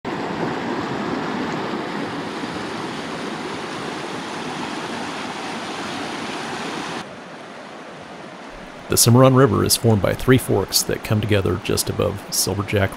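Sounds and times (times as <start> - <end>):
river rushing over rocks: 0.1 - 10.0.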